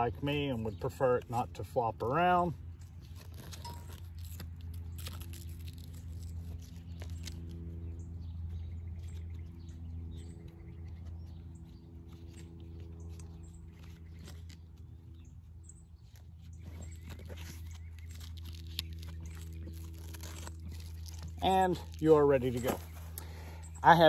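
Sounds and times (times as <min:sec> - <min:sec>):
steady low hum: 0:00.0 - 0:24.0
leather strap rubbing: 0:02.9 - 0:23.2.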